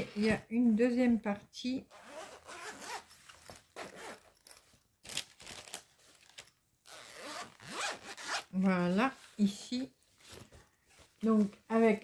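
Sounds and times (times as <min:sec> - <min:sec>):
fabric and plastic case rustling: 0:02.6 - 0:12.0.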